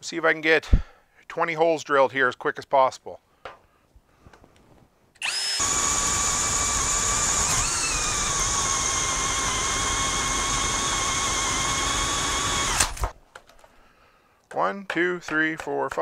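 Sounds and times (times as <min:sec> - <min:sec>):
cordless drill whining: 0:05.2 - 0:13.2.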